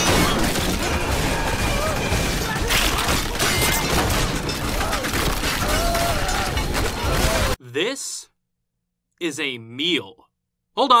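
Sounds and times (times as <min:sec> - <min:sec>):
crashing smashing impacts: 0:00.0 - 0:07.6
people screaming: 0:00.8 - 0:03.4, 0:04.6 - 0:07.6.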